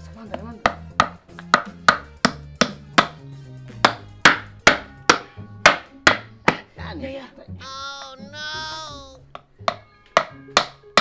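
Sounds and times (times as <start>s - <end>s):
background music: 0.0s - 11.0s
wooden mallet knocking on wood: 0.3s - 3.2s, 3.8s - 6.7s, 9.3s - 11.0s.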